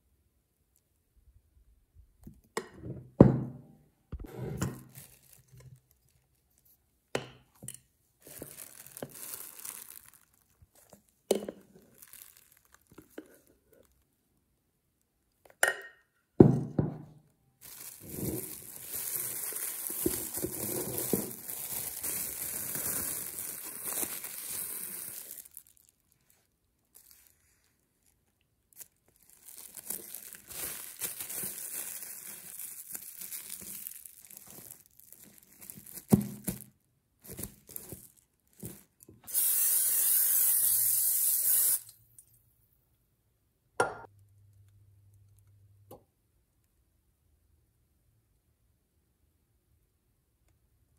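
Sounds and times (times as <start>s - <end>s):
rustling handling noise: 4.2s - 14.2s, 17.6s - 39.0s.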